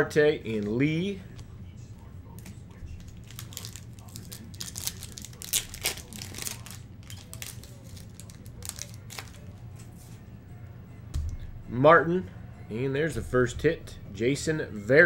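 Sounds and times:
foil wrapper tearing and crinkling: 3.0 - 9.5.

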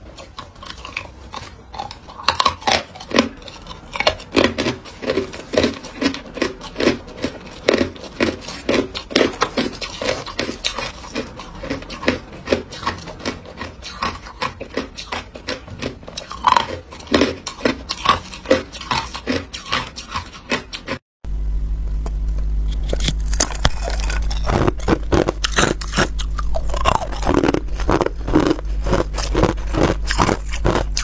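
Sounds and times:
ice crunched between teeth: 22.9 - 31.0.

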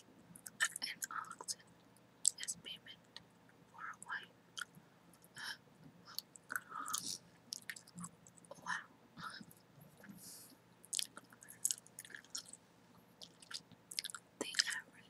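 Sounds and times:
chewing gum mouth smacks: 10.9 - 12.6, 13.2 - 14.7.

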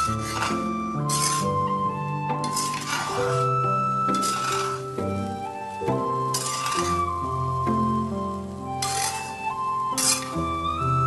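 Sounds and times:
metal spatula scraping frying pan: 0.0 - 5.2, 5.9 - 7.8, 8.4 - 10.4
background music: 0.0 - 11.0.

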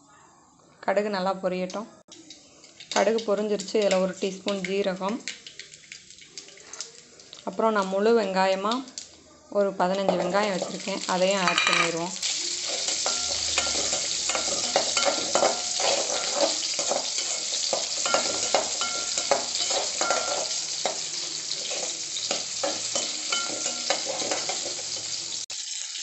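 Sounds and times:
shallots sizzling in hot oil: 1.7 - 26.0
metal spatula scraping pan: 9.9 - 25.2.

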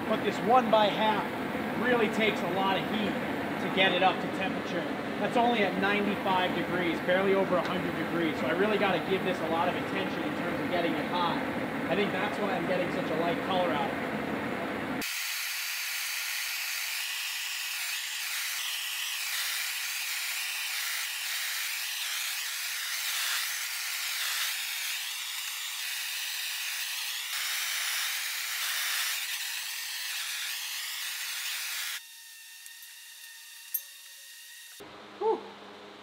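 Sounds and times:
gas torch flame hissing: 15.0 - 32.0.

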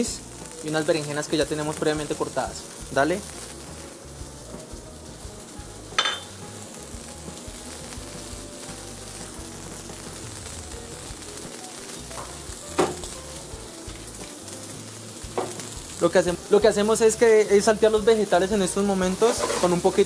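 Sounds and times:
food sizzling in hot oil: 0.0 - 20.0
metal pan clanks: 6.0 - 6.3.

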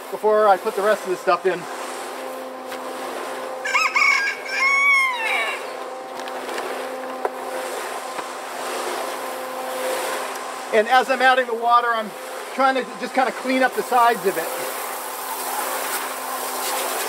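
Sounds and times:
concrete mixer humming: 0.0 - 17.0
rooster crowing: 3.6 - 5.8.

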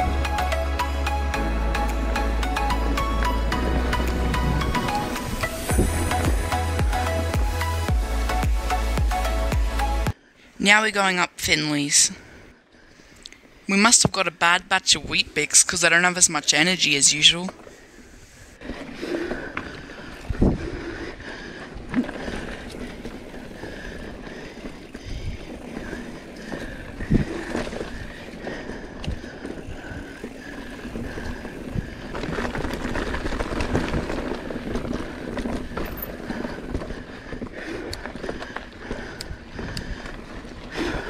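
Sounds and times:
bike tyres on dirt and stones: 0.0 - 10.3, 15.2 - 41.0
bike rattling over bumps: 1.8 - 7.5, 17.6 - 41.0
wind on microphone: 3.7 - 6.4, 20.2 - 20.9.

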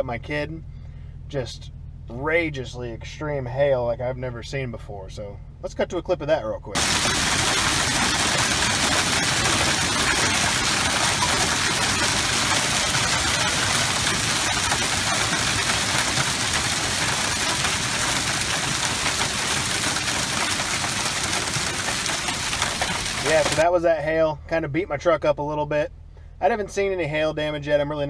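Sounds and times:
hail clattering: 6.8 - 23.6.

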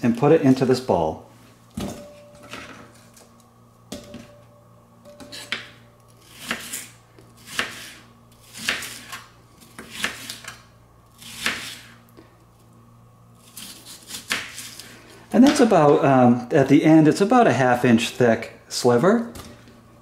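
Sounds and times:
knife slicing onion on board: 5.1 - 12.0, 13.4 - 14.8.

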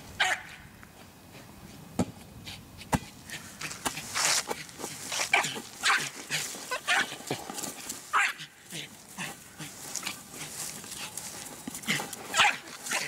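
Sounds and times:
dog barking and yipping: 0.2 - 0.5, 5.3 - 7.2, 8.1 - 8.5, 11.9 - 13.0.

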